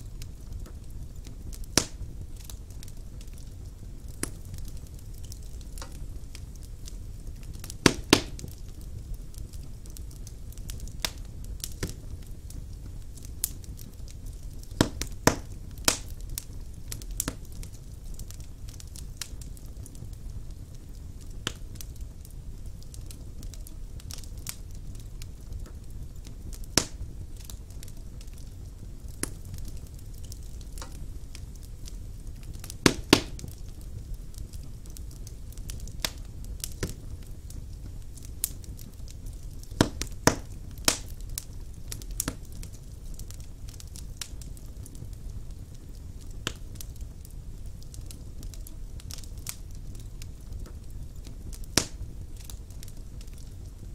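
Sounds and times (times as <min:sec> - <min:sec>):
fire rumbling: 0:00.0 - 0:53.9
wood crackling and popping: 0:00.0 - 0:53.9.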